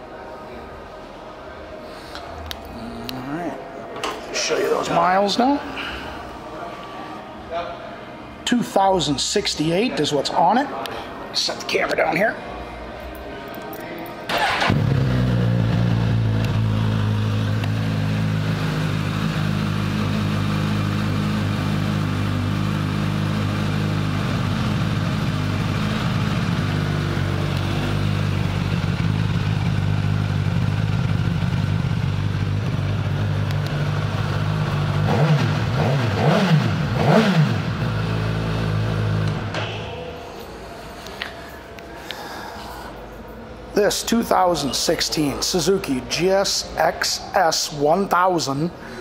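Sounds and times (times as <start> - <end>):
motorcycle engine starting and idling: 14.3 - 39.6.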